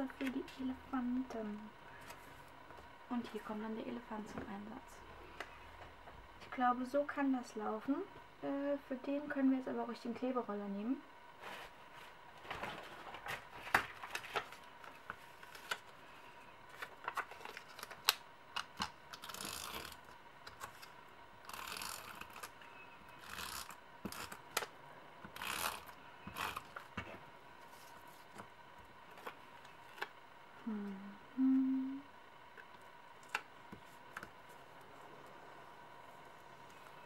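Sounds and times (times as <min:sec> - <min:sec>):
runner mechanism and paper clicking: 0:16.7 - 0:22.6.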